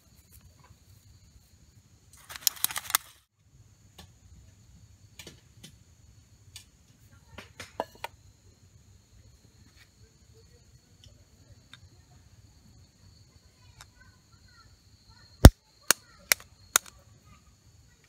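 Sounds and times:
crackly clicks of handling: 2.1s - 3.2s, 15.4s - 17.0s.

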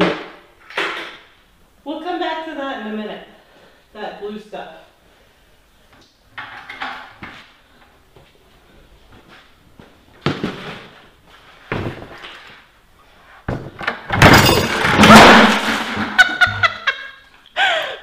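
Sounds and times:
person laughing: 16.0s - 18.0s.

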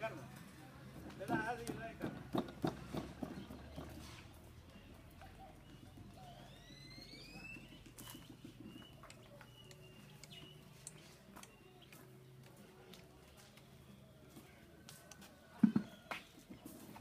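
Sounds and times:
rising bird whistles: 5.7s - 10.7s.

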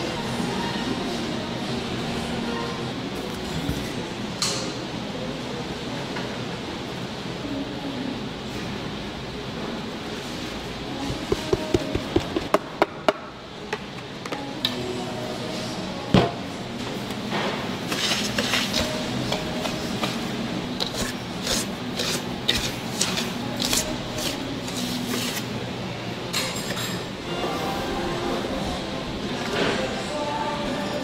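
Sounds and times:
utensils and dishes clinking: 26.2s - 27.4s.

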